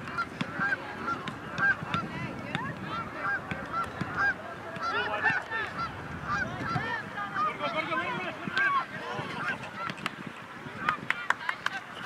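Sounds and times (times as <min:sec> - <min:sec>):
geese honking: 0:00.2 - 0:01.8, 0:03.0 - 0:08.0.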